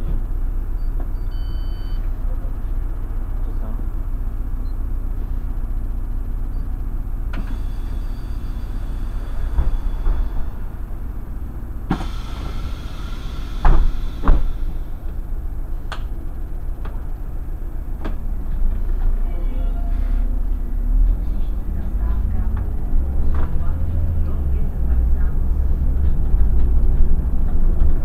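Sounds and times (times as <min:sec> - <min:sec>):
bus engine rumble: 0:00.0 - 0:28.0
loud thumps: 0:07.4 - 0:16.0
air hiss: 0:11.8 - 0:15.2.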